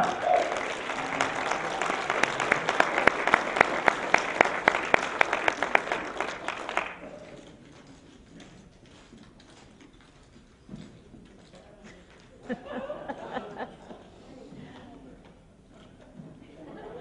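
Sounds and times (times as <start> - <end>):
audience rhythmic clapping: 0.0 - 7.6.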